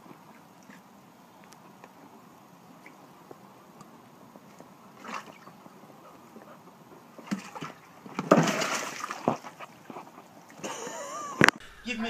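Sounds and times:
water sloshing and splashing: 0.0 - 11.2
plastic scraping on concrete: 7.2 - 10.6.

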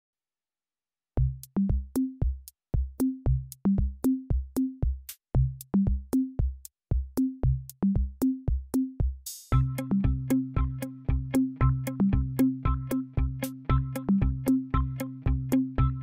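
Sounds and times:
electronic drum machine beat: 1.2 - 16.0.

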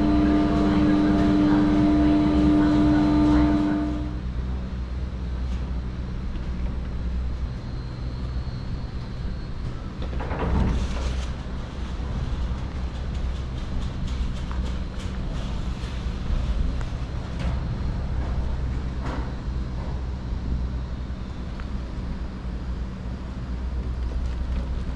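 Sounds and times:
pitched hum: 0.0 - 10.4
chairlift mechanical rumble: 0.0 - 24.9.

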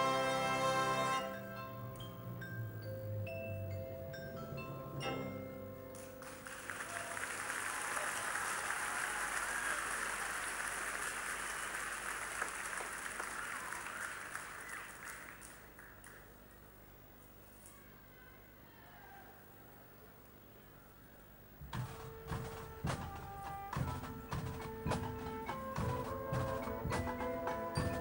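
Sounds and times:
marimba and vibraphone notes: 1.1 - 6.2, 23.7 - 28.0
crowd applauding: 6.0 - 16.5.

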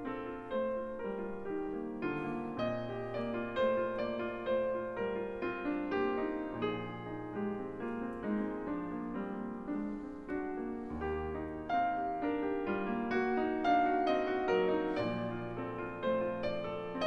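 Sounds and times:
slow piano melody: 0.0 - 17.0.

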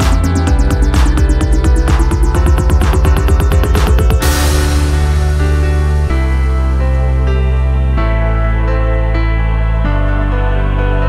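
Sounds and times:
fast pulsing synth beat: 0.0 - 6.2
rushing synth swell: 0.0 - 7.8
held synth chords: 0.0 - 11.0.

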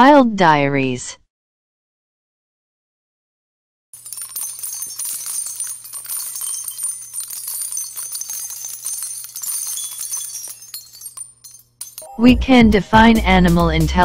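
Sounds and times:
small bells jingling: 4.0 - 12.4.

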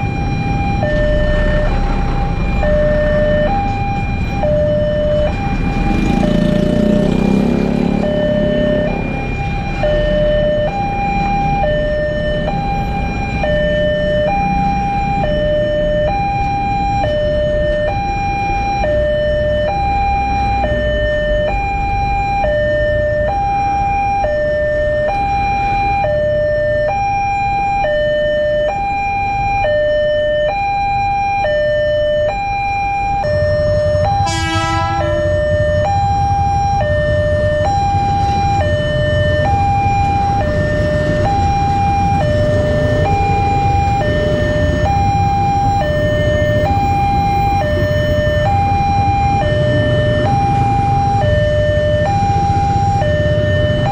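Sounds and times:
level crossing two-note alarm: 0.0 - 53.9
train horn blast: 34.2 - 35.4
train rumble: 39.2 - 51.1.

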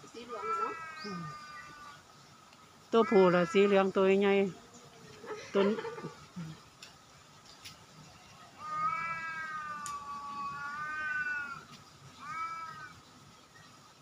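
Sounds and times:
cat yowling: 8.6 - 11.6, 12.2 - 12.9.

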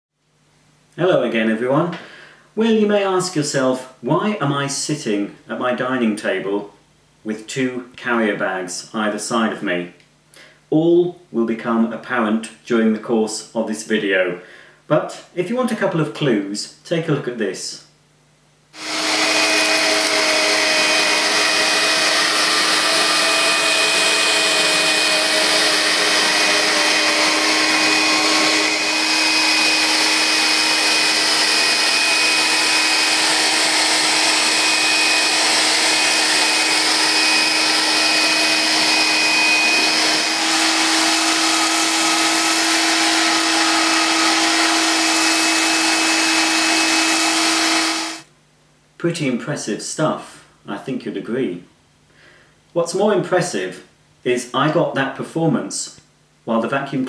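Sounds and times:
vacuum cleaner motor humming: 18.8 - 48.3.

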